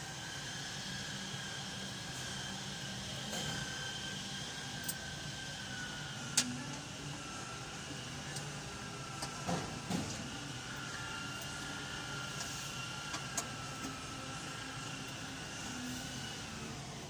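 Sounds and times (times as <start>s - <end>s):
steady hum: 0.0s - 17.0s
faint high whine: 10.1s - 17.0s.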